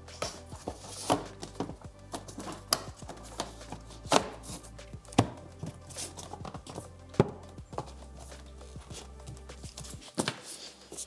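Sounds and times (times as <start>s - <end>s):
background music: 0.0s - 11.0s.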